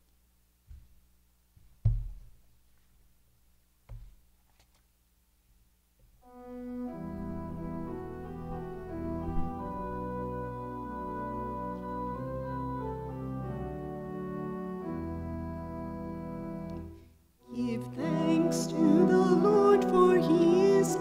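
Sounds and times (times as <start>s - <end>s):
thumps on microphone: 0.7s - 1.0s, 1.6s - 2.4s, 3.9s - 4.2s
organ chords: 6.2s - 21.0s.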